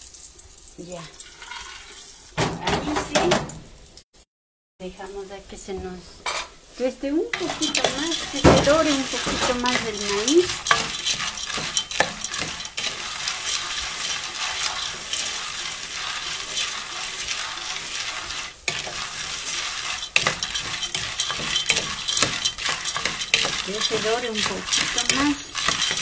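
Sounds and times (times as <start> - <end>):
corn kernels sizzling in pot: 0.0 - 3.1, 6.6 - 26.0
wooden spoon scraping pot: 7.2 - 26.0.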